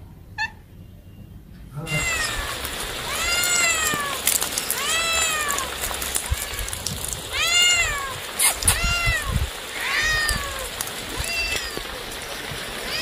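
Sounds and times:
cat meowing: 1.9s - 12.0s.

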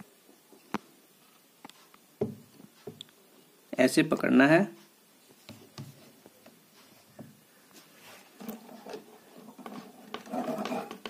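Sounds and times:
soft rustle: 4.8s - 10.9s.

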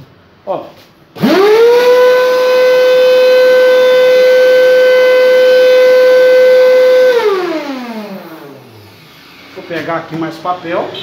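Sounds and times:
vacuum cleaner motor whine: 1.2s - 10.2s.

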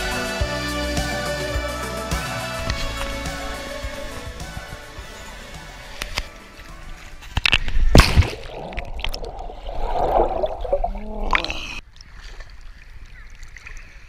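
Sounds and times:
water splashing against camera: 5.9s - 14.0s
underwater gurgling: 6.0s - 14.0s.

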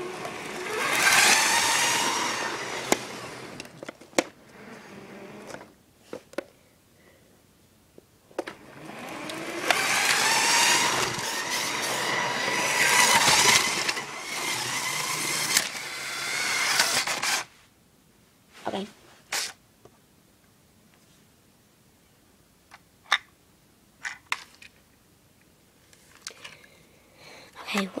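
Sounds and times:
toy train motor whirring: 0.0s - 3.7s, 8.6s - 17.5s.

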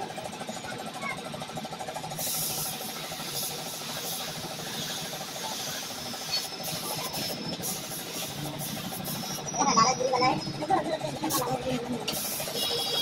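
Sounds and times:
motor running steadily: 0.0s - 13.0s
compressed air hissing: 2.1s - 10.2s, 11.3s - 13.0s.

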